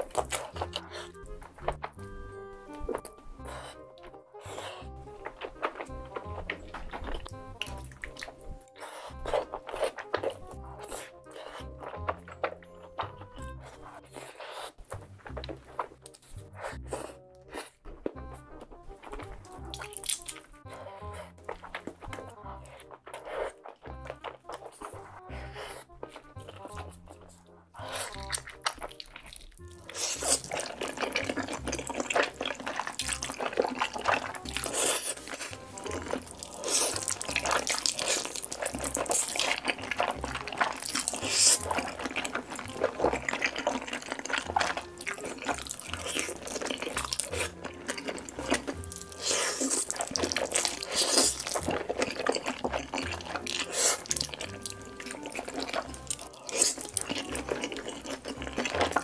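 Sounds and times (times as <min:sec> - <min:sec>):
background music: 0:00.0 - 0:59.0
wet chewing and slurping: 0:00.0 - 0:59.0.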